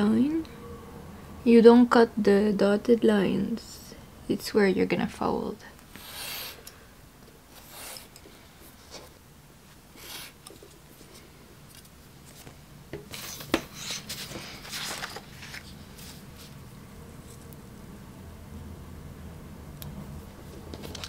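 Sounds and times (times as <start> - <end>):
craft knife cutting card: 10.0 - 10.4.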